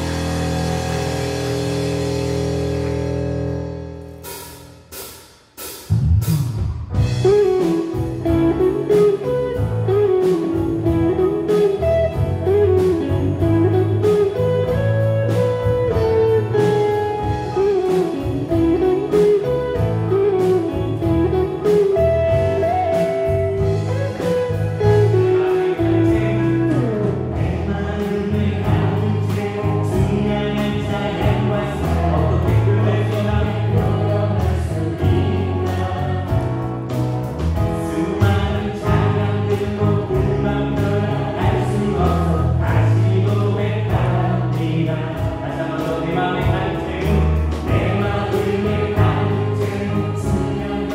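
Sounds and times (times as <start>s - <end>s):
live band playing: 0.0s - 50.9s
sliding melody line: 7.0s - 50.9s.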